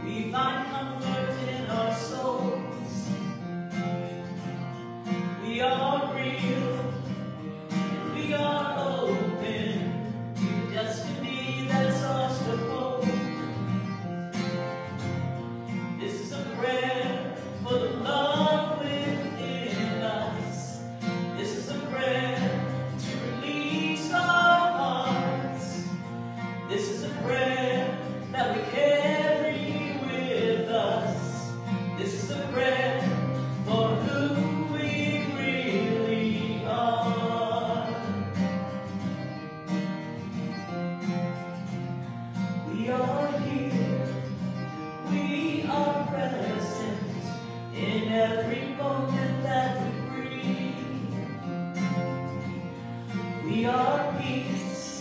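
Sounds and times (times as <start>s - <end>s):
woman singing: 0.0s - 3.1s, 5.4s - 7.1s, 8.0s - 10.1s, 10.7s - 13.4s, 16.0s - 26.0s, 26.7s - 38.1s, 42.6s - 44.3s, 45.0s - 51.4s, 53.4s - 55.0s
strummed acoustic guitar: 0.0s - 55.0s.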